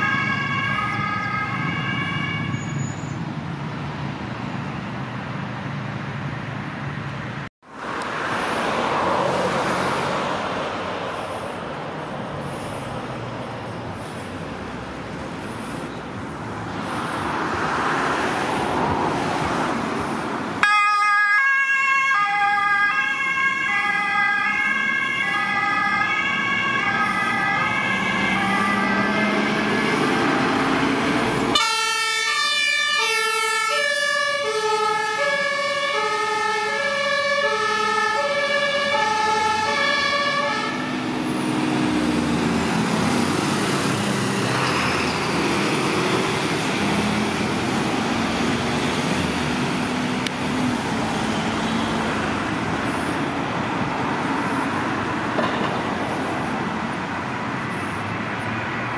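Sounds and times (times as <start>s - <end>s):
fire engine two-tone horn: 0.0s - 3.1s, 20.6s - 30.7s, 31.5s - 41.0s
diesel engine revving: 23.8s - 58.9s.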